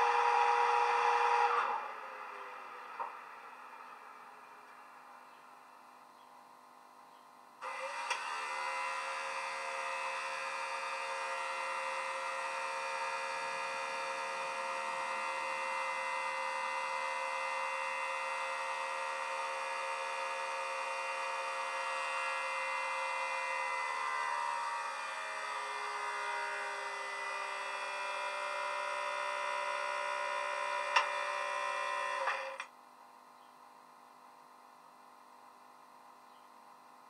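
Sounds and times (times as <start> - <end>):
electric equipment hum and whine: 0.0 - 37.0.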